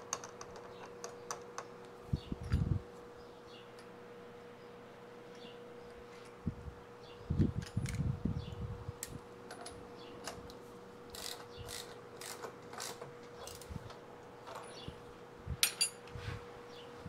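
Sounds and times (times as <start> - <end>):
faint hum: 0.0 - 17.0
metal tools scraping and clicking: 15.6 - 16.1.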